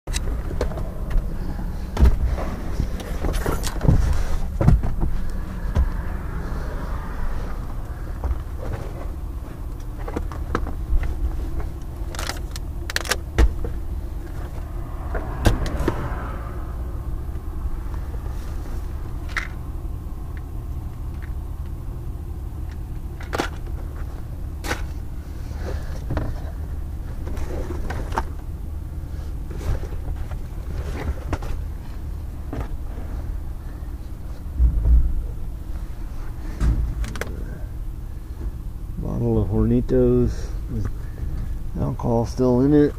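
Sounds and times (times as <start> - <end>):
items knocking and rustling in car: 0.1 - 6.2, 7.5 - 16.1, 22.6 - 37.7
steady low rumble: 0.1 - 42.9.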